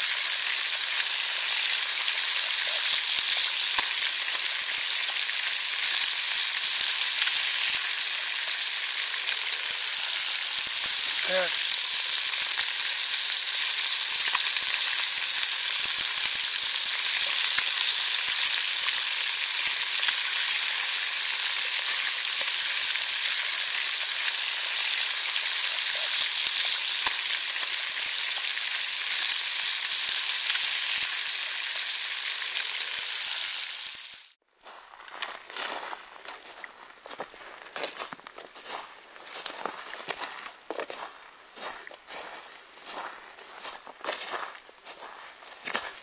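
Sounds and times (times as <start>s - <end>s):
fish sizzling in a frying pan: 0.0s - 34.4s
footsteps on rocky ground: 34.6s - 46.0s.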